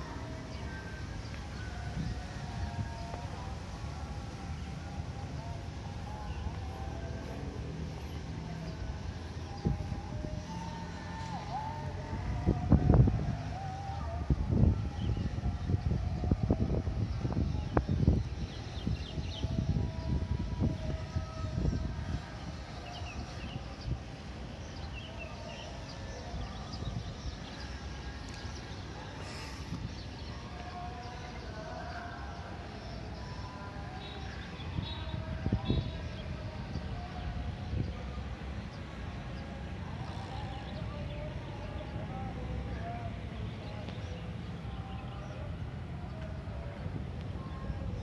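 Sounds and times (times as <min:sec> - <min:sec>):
distant traffic rumble: 0:00.0 - 0:48.0.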